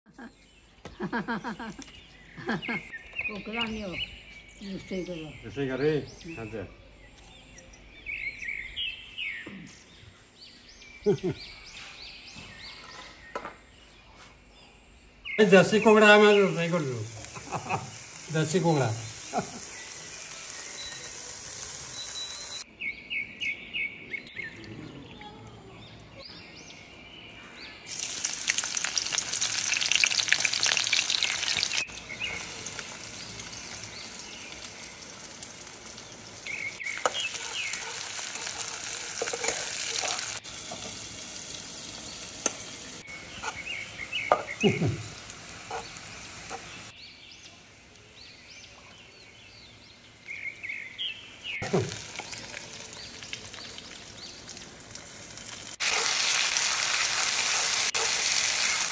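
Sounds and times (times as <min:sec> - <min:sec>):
birds chirping: 0:00.1 - 0:58.9
onions sizzling in hot oil: 0:15.4 - 0:22.6, 0:27.9 - 0:46.9, 0:51.6 - 0:58.9
stirring: 0:36.6 - 0:40.4.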